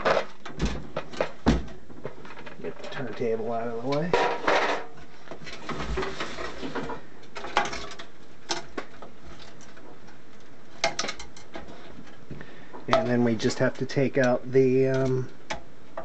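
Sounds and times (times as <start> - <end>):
scraping rustle of sheet metal: 4.0 - 8.0.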